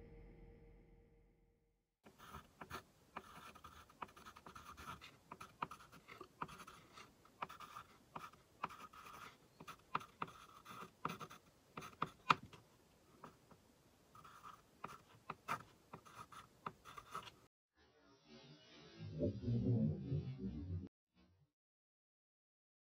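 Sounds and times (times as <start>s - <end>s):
background music: 0.0s - 1.4s
pen scratching on board: 2.1s - 12.6s, 14.2s - 17.4s.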